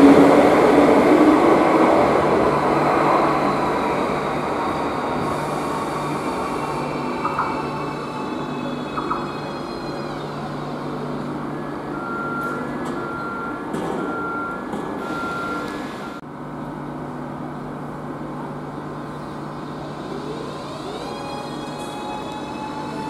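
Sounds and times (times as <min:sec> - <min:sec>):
train hum: 0:00.0 - 0:23.0
high warning beeps: 0:11.9 - 0:16.2
traction motors whining: 0:19.7 - 0:23.0.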